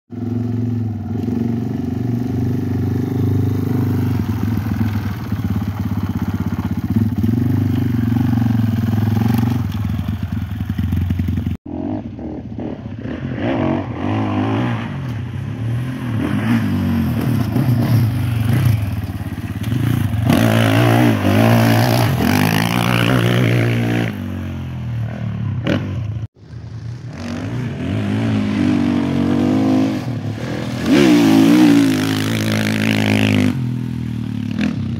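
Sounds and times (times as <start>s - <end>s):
motorcycle engine revving: 0.1s - 34.9s.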